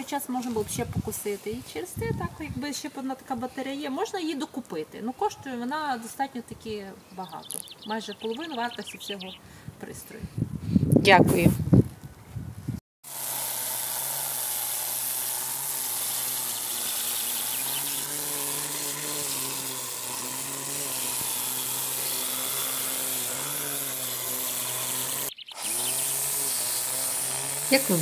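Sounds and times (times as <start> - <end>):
string trimmer cutting grass: 13.0 - 28.0.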